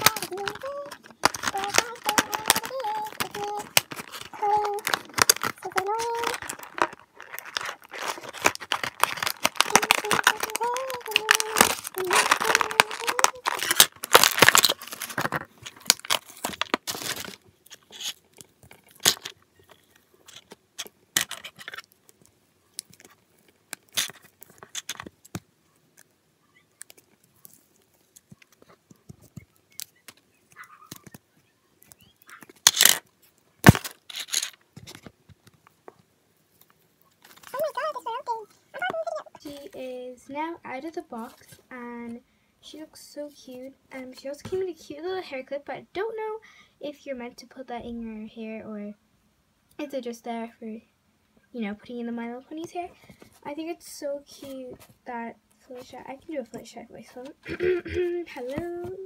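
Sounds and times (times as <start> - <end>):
packaging ripping and rustling: 0.0 - 22.2, 22.8 - 25.4, 31.8 - 35.1, 37.2 - 37.9.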